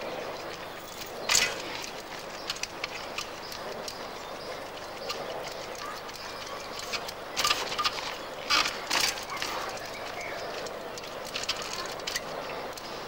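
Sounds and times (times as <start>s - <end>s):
bike tyres clattering on rock: 5.0s - 13.0s.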